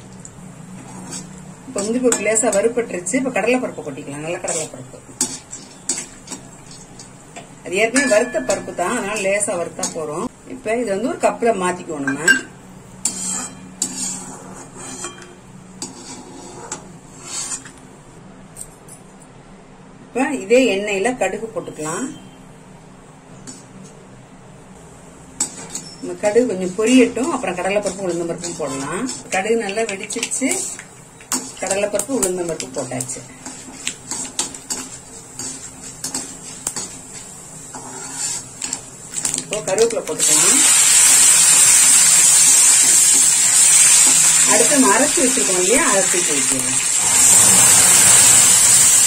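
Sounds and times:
light sizzle: 0.0s - 18.2s, 21.2s - 49.0s
metal spatula scraping a pan: 0.8s - 2.8s, 4.3s - 7.1s, 13.0s - 17.8s, 25.4s - 31.9s, 32.6s - 39.4s, 47.0s - 49.0s
metal ladle clinking on metal pan: 7.9s - 9.2s.

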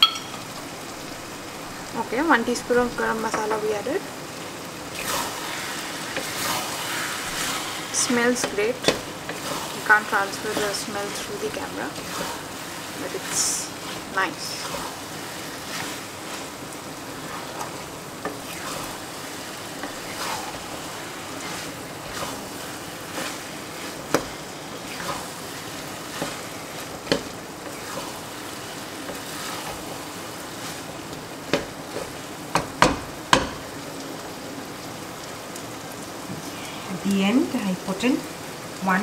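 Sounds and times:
food sizzling in a wok: 0.0s - 39.0s
spatula scraping a wok: 4.9s - 32.3s
spatula knocking against pan: 32.5s - 33.6s.

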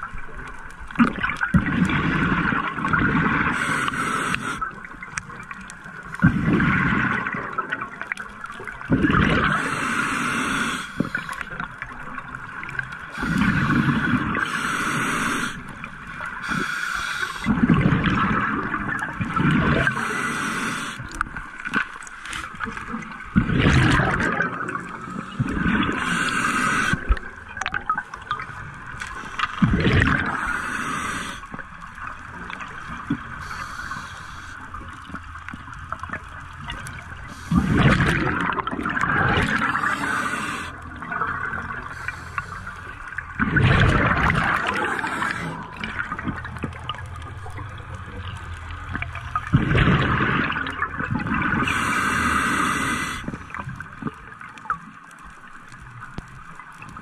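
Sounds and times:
exhaled bubbles gurgling: 0.0s - 57.0s
regulator hiss on inhale: 3.5s - 4.7s, 9.4s - 11.6s, 13.1s - 15.7s, 16.3s - 17.6s, 19.7s - 21.1s, 25.2s - 27.2s, 30.2s - 31.6s, 33.3s - 34.9s, 37.2s - 38.1s, 39.5s - 40.8s, 41.8s - 43.2s, 44.6s - 45.8s, 51.6s - 53.6s.

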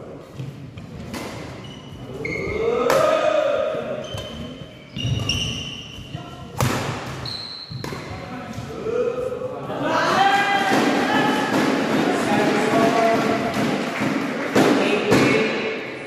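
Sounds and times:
racket hitting shuttlecock: 0.4s - 1.6s, 6.5s - 8.3s
shoe squeaks on court: 4.0s - 6.1s, 7.2s - 8.0s.

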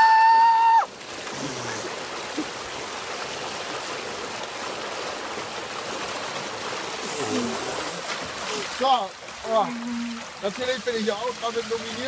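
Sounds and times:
water rushing down a slide: 0.0s - 12.0s.

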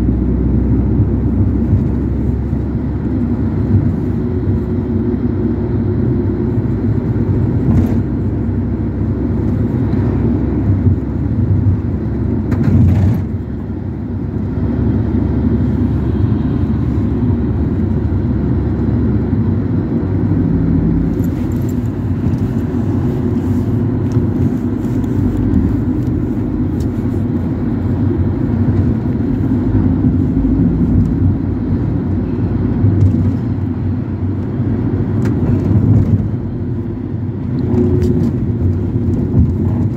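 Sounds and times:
engine and road noise inside vehicle: 0.0s - 39.9s.

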